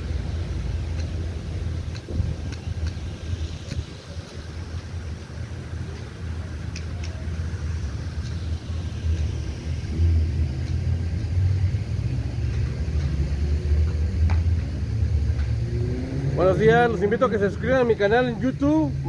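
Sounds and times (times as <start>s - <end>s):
low uneven rumble: 0.0s - 19.0s
faint distant voices: 2.2s - 9.8s.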